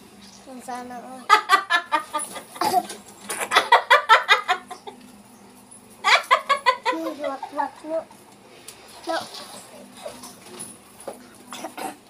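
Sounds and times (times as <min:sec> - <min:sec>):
comic chicken-like clucking: 0:03.3 - 0:05.0, 0:06.0 - 0:07.6.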